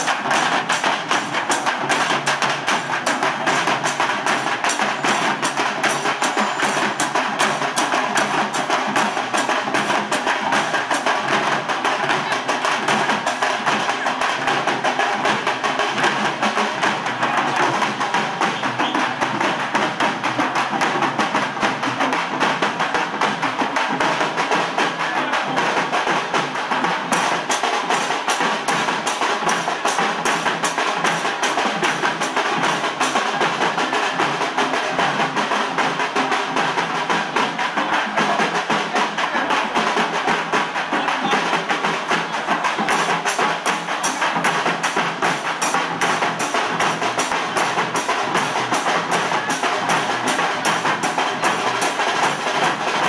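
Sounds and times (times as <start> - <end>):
fast drumming: 0.0 - 53.0.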